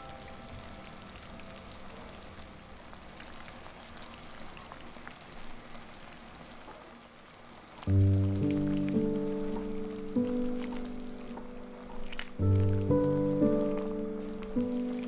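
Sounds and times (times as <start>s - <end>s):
food sizzling in pan: 0.0s - 15.0s.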